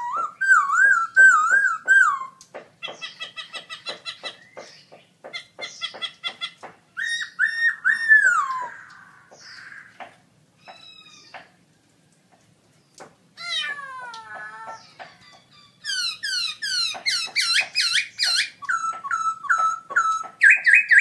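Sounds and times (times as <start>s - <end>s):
bird singing whistled phrases: 0.0s - 2.4s, 7.0s - 9.7s, 15.9s - 21.0s.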